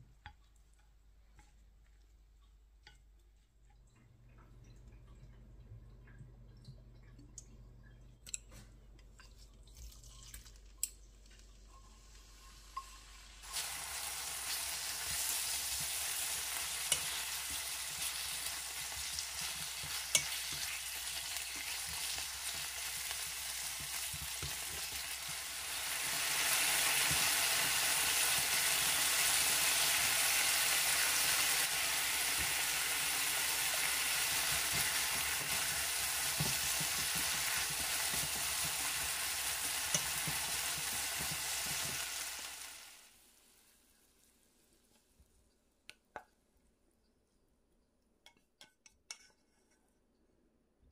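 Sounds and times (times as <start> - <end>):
chicken sizzling in oil: 11.2 - 44.3.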